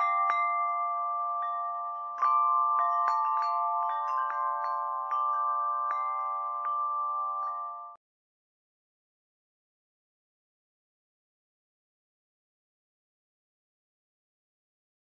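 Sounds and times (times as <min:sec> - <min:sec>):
tinkling bell-like chimes: 0:00.0 - 0:08.0.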